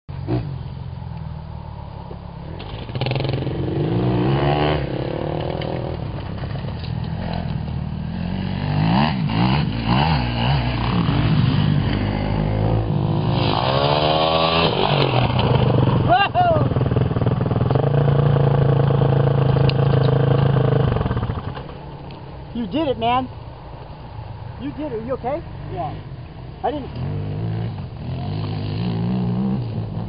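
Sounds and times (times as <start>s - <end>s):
dirt bike engine revving: 2.5s - 21.7s, 25.6s - 30.0s.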